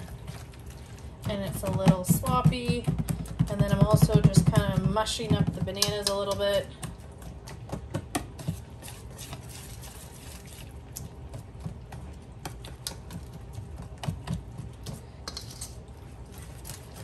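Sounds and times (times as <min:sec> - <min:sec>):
whisk tapping against bowl: 0:01.2 - 0:08.6.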